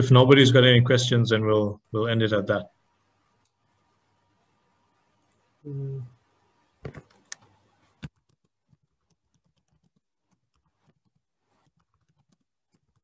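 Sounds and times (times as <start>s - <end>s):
computer keys and mouse clicking: 6.8s - 13.0s.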